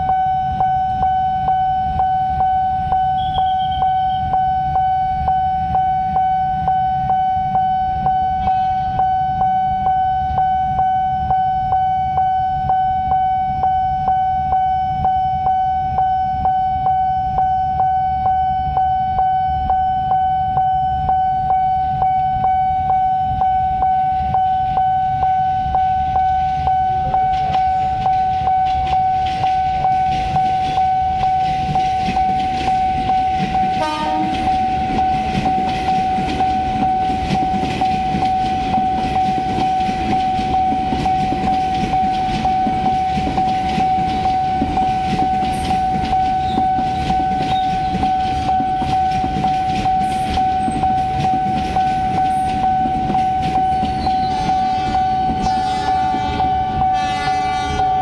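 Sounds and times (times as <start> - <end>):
level crossing alarm tone: 0.0 - 58.0
train wheels rumbling on rails: 0.0 - 58.0
train horn: 3.1 - 4.4, 8.2 - 9.0, 32.6 - 35.4, 53.8 - 58.0.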